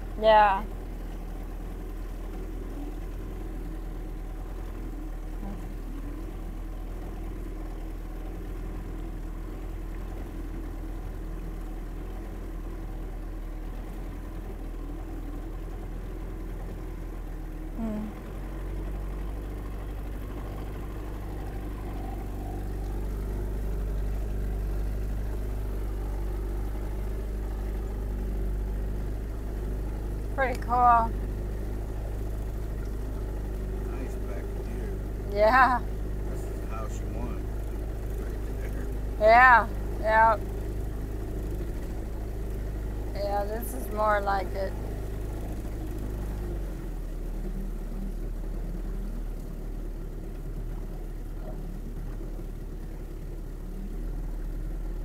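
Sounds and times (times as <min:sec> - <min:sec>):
boat motor running: 0:00.0 - 0:55.0.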